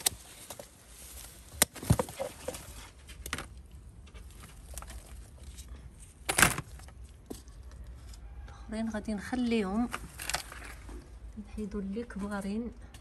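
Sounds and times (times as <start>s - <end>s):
leaves and stems rustling: 0.0s - 5.8s.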